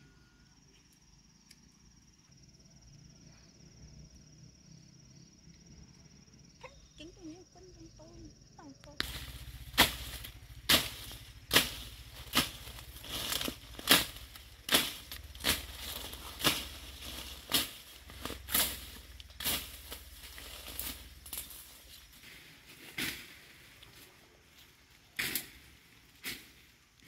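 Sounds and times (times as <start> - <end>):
leaves rustling: 8.6 - 27.0
machete chopping stems: 9.0 - 21.6, 22.9 - 23.4, 25.2 - 26.7.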